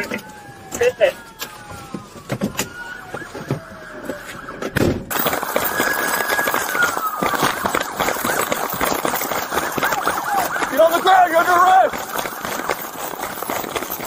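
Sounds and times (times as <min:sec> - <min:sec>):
police siren winding down: 0:00.0 - 0:14.0
rushing rustling noise: 0:05.1 - 0:14.0.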